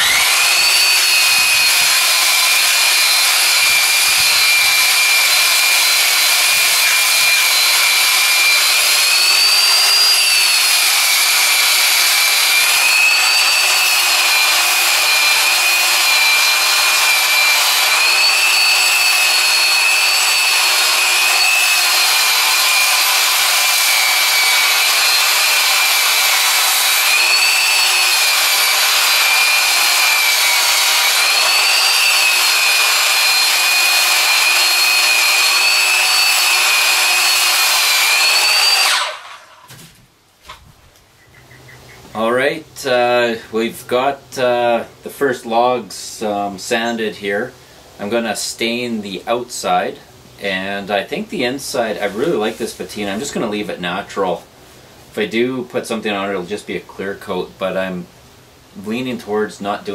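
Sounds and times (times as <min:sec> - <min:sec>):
wheel sander whining on wood: 0:00.0 - 0:39.6.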